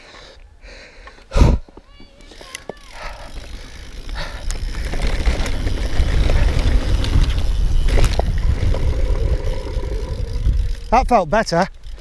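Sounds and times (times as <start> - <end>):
bike tyres rolling over grass: 1.8 - 12.0
wind buffeting microphone: 3.4 - 11.2.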